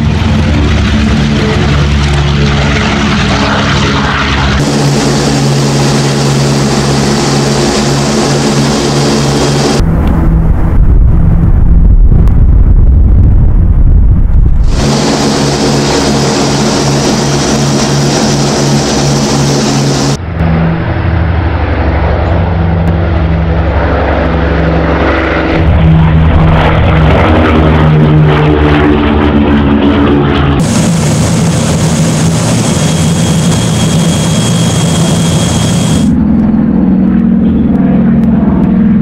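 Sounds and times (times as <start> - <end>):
radial piston engines droning: 0.1 - 9.8, 14.7 - 20.6, 30.6 - 39.0.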